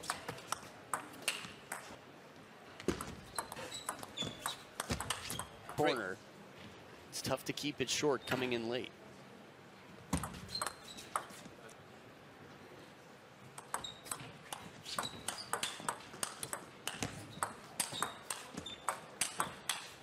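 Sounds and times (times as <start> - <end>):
table tennis ball clicks: 3.0 - 5.9, 13.5 - 20.0.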